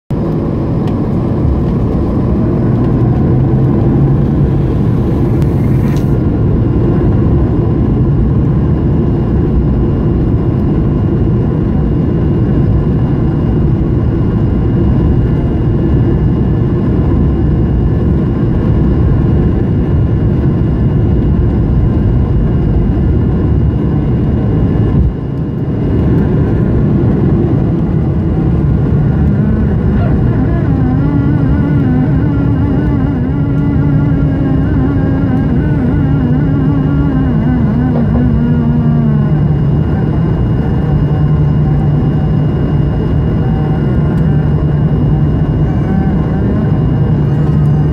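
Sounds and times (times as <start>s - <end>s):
jet engines roaring in cabin: 0.1s - 47.9s
thin high whine: 3.7s - 6.3s, 28.0s - 47.9s.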